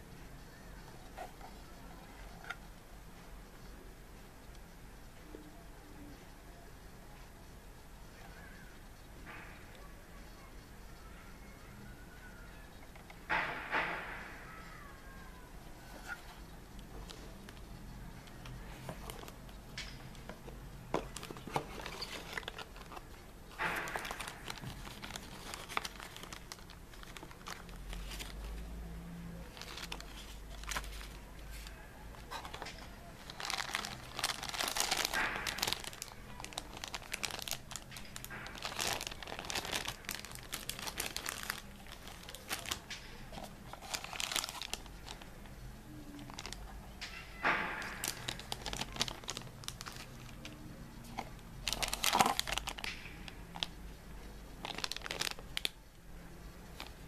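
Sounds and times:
plastic bags crinkling: 0:18.4 - 0:28.8, 0:29.4 - 0:53.8, 0:54.4 - 0:55.8, 0:56.7 - 0:57.0.

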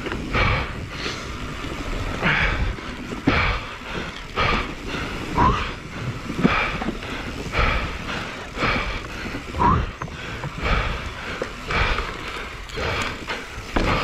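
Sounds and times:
bike rattling: 0:00.0 - 0:14.0
heavy rhythmic breathing: 0:00.0 - 0:14.0
bike tyres knocking on boards: 0:13.6 - 0:14.0.

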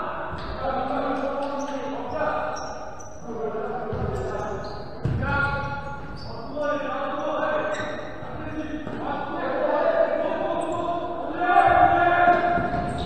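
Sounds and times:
voices chanting: 0:06.2 - 0:13.0.

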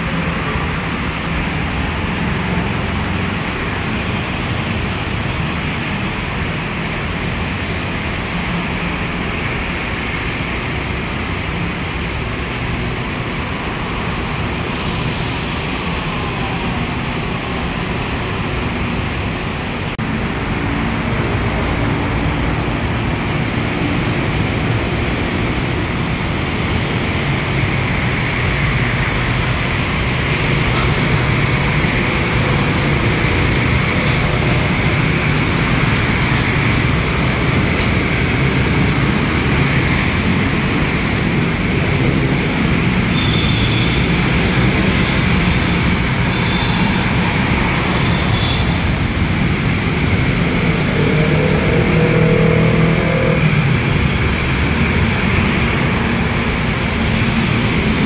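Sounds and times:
monorail train running: 0:00.0 - 0:58.0
road traffic: 0:00.0 - 0:58.0
monorail train faint whine: 0:06.3 - 0:20.6.

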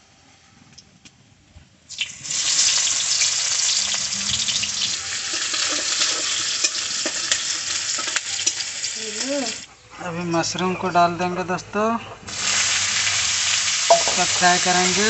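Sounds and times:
onion sizzling in hot oil: 0:01.9 - 0:09.6, 0:12.3 - 0:15.0.

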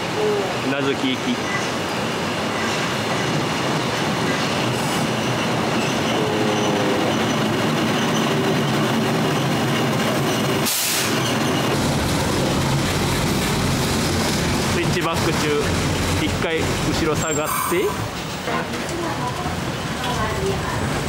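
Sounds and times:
train wheels rumbling on rails: 0:00.0 - 0:21.0
wheel squeal: 0:04.3 - 0:11.8, 0:17.1 - 0:18.2.

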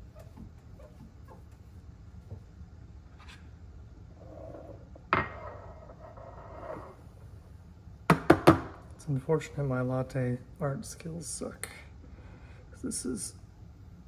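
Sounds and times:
scraping on countertop: 0:04.2 - 0:07.0.

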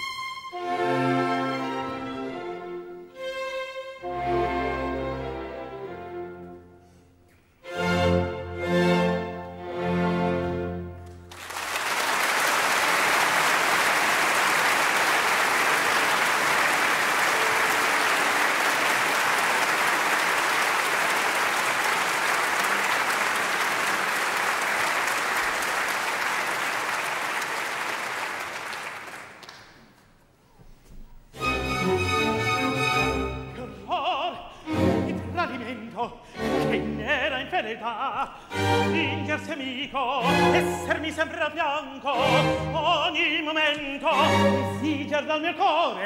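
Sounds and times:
audience applauding: 0:11.3 - 0:30.0.

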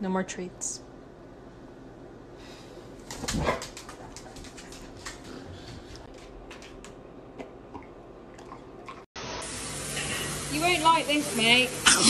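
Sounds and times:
dog claws on wooden floor: 0:03.0 - 0:07.0.

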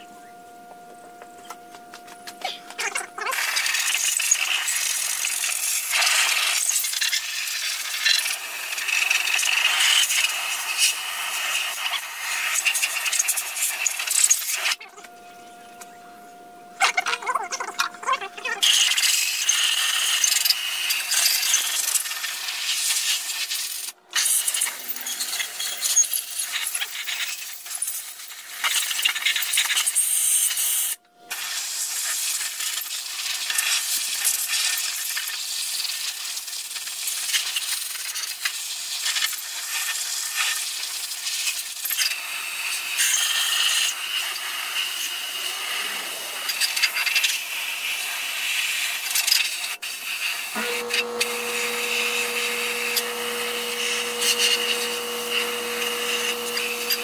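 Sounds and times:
compressed air blow gun hissing: 0:42.6 - 0:57.0.

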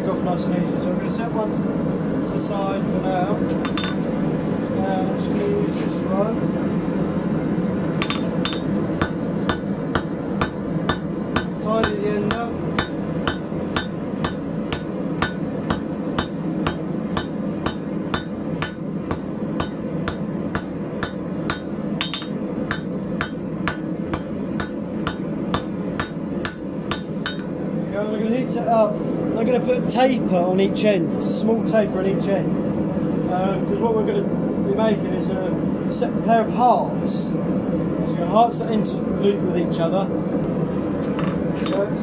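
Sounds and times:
hammer striking metal on anvil: 0:03.6 - 0:04.1, 0:08.0 - 0:27.5.

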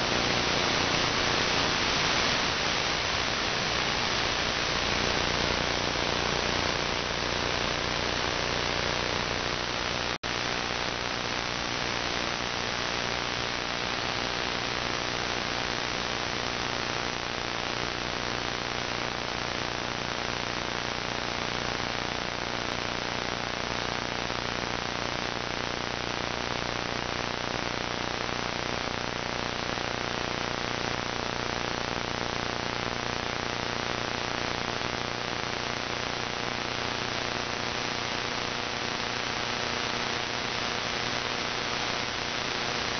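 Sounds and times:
faint hum: 0:00.0 - 0:19.4
radio static hiss: 0:00.0 - 0:42.9.

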